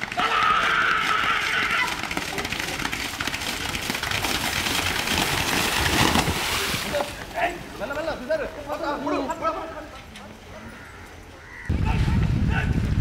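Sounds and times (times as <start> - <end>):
people shouting: 0.0 - 2.1
buffalo splashing through water: 1.8 - 7.8.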